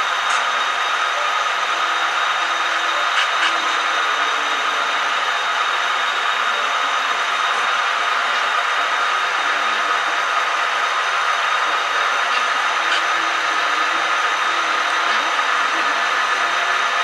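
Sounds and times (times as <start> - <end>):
model train motor whirring: 0.0 - 17.0.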